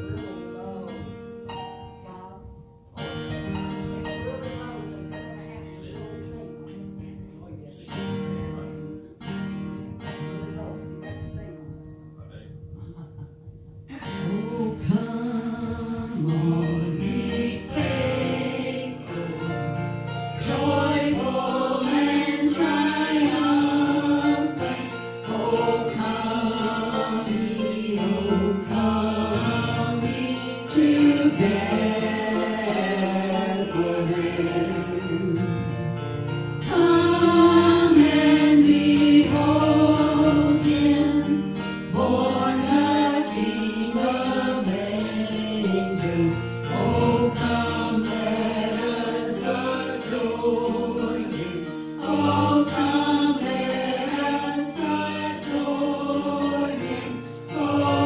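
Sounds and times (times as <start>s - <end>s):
instrumental accompaniment: 0.0s - 58.0s
voices singing gospel song: 13.9s - 35.8s, 36.4s - 58.0s.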